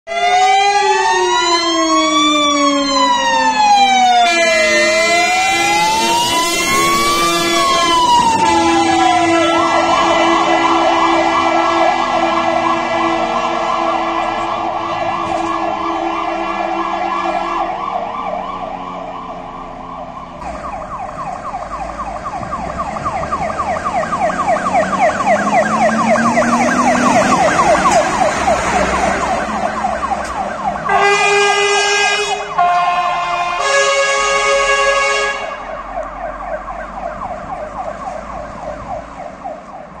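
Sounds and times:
fast yelping siren: 0:00.1 - 0:39.9
fire engine siren: 0:00.1 - 0:40.0
short horn blasts: 0:30.9 - 0:35.6.

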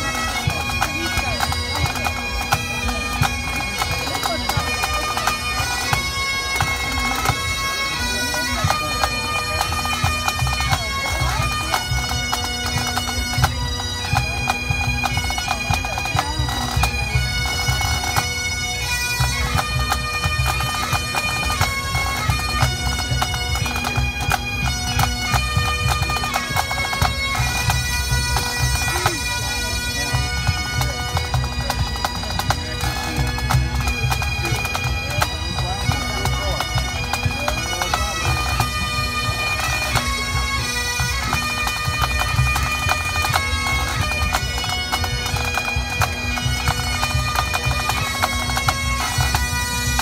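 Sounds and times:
bagpipes playing march: 0:00.0 - 0:50.0
steady drumming: 0:00.0 - 0:50.0.

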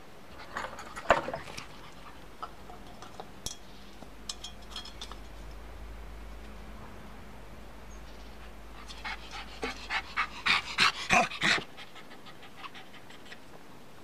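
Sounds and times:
dog panting: 0:08.4 - 0:13.4.

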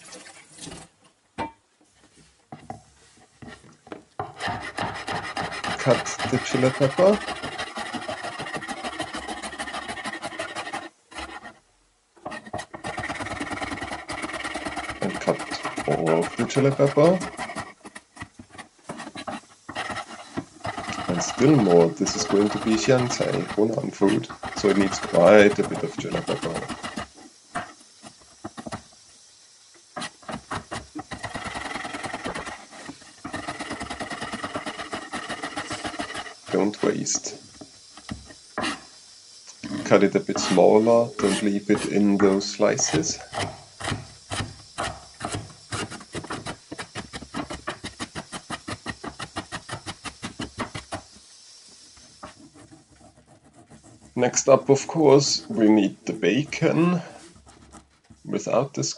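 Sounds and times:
knife chopping on cutting board: 0:04.2 - 0:11.3.

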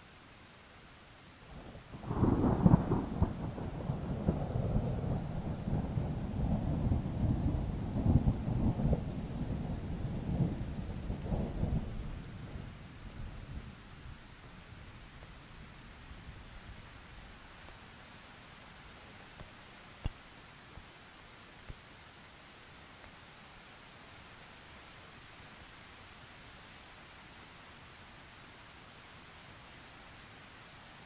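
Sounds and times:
steady rain hiss: 0:00.0 - 0:31.0
rolling thunder: 0:02.0 - 0:12.0.

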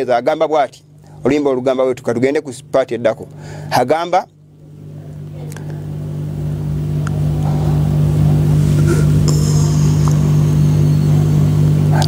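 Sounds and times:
low steady hum: 0:00.0 - 0:12.0
faint high whine: 0:04.6 - 0:12.0.

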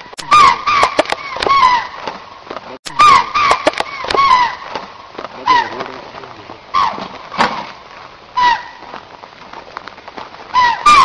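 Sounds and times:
deer calling: 0:00.2 - 0:02.2, 0:02.9 - 0:07.7, 0:08.3 - 0:08.9, 0:10.5 - 0:11.0
sharp clicks: 0:00.2 - 0:02.2, 0:03.5 - 0:04.8.

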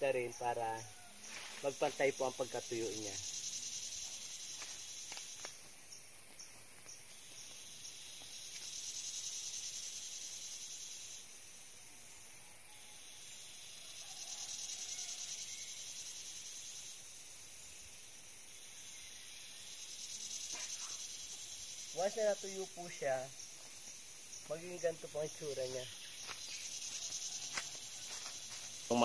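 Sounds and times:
insects calling: 0:00.0 - 0:29.0.

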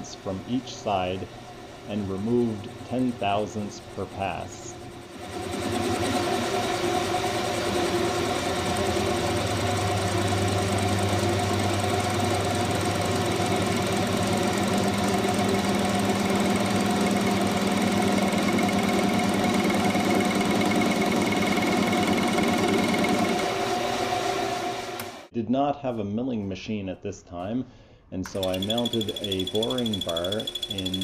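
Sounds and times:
lathe motor hum: 0:01.4 - 0:25.2, 0:28.3 - 0:31.0
lathe tool knocking on metal: 0:28.3 - 0:31.0.

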